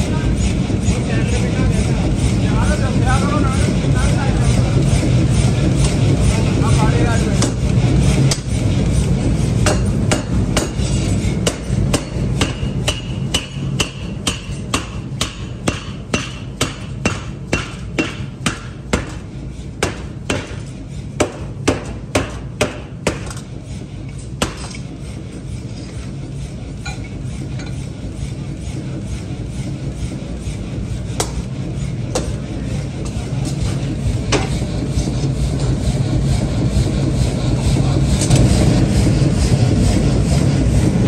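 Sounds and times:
low machine hum: 0.0 - 41.0
power hammer striking hot steel: 2.1 - 25.0, 31.0 - 36.0, 37.6 - 41.0.

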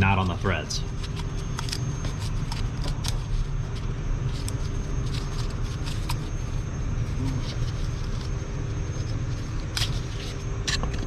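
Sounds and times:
gloves rubbing on plastic: 0.0 - 10.6
steady low rumble: 0.0 - 11.0.

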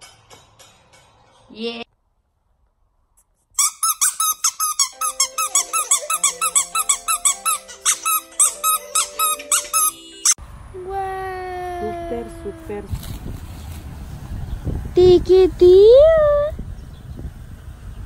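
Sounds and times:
rubber squeeze toy squeaking: 3.6 - 10.4
music playing: 4.9 - 10.4.

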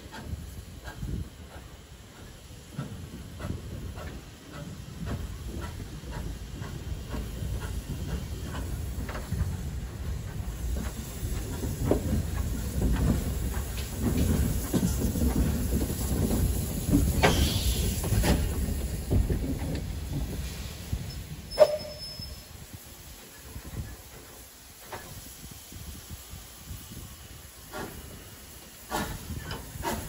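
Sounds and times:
steam hiss: 0.0 - 30.0
steam locomotive rumbling: 0.0 - 30.0
wheels clanking and clicking: 0.1 - 22.0.

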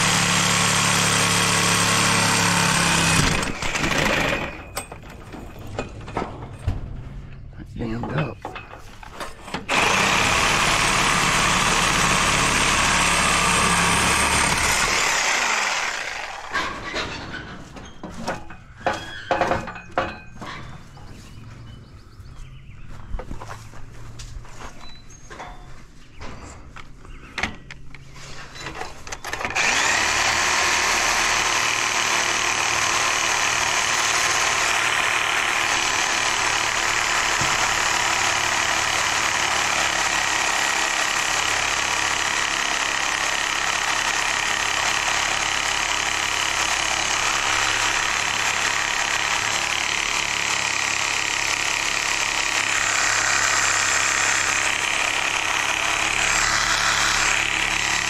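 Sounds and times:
motor running: 0.0 - 4.6, 9.6 - 16.6, 29.4 - 58.0.

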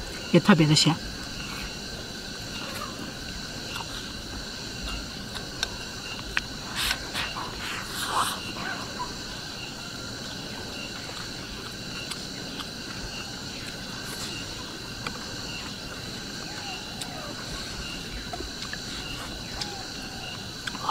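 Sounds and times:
insect chirping: 0.0 - 20.9
slurping and chewing: 2.8 - 9.4, 10.1 - 19.7, 20.5 - 20.9.

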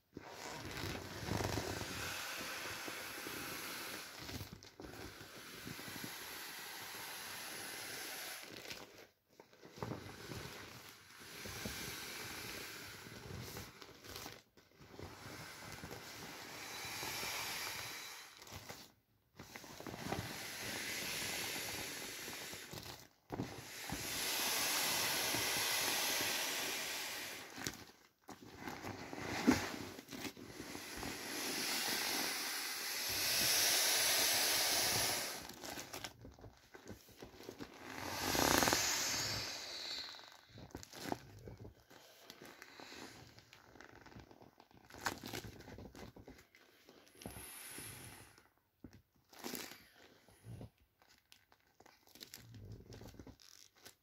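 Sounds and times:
air hissing out of inflatable: 0.2 - 9.0, 9.7 - 14.2, 14.8 - 18.9, 19.5 - 27.9, 28.8 - 36.2, 37.7 - 43.4, 47.1 - 48.5
soft plastic crinkling: 40.0 - 47.3, 48.6 - 54.0.

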